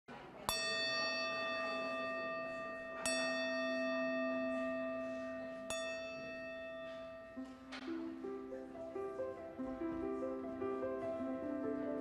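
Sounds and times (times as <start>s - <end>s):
metal singing bowl ringing: 0.5s - 7.5s.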